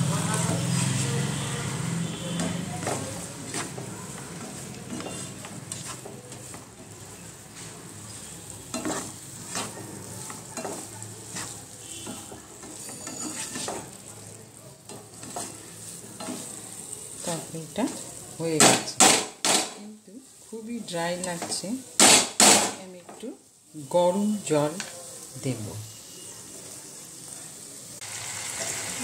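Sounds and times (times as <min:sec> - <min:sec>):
faint sizzle: 0:00.0 - 0:29.0
spatula scraping frying pan: 0:00.5 - 0:14.0, 0:14.9 - 0:18.0.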